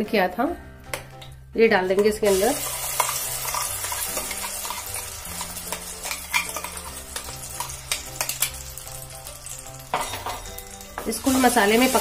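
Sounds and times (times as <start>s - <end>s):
spoon scraping metal jar: 2.0s - 8.6s
paste sizzling in hot oil: 2.0s - 12.0s.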